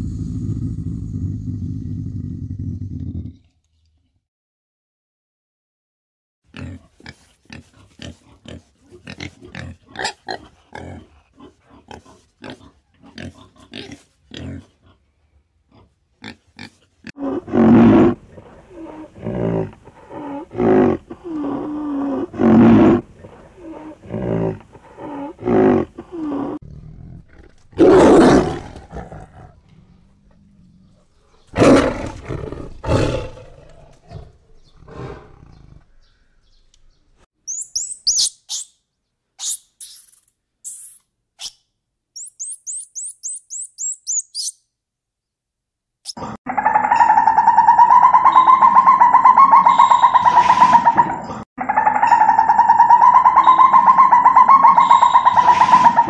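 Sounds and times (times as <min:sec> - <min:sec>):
high chirps: 0:37.5 - 0:38.8, 0:39.4 - 0:41.6, 0:42.2 - 0:44.7, 0:51.9 - 0:55.9
rhinoceros deep calls: 0:46.5 - 0:56.0.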